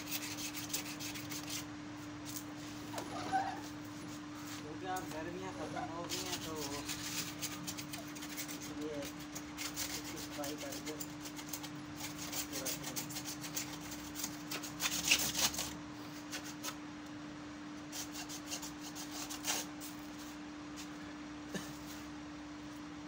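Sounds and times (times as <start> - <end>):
bristle brush scrubbing: 0.0 - 16.7.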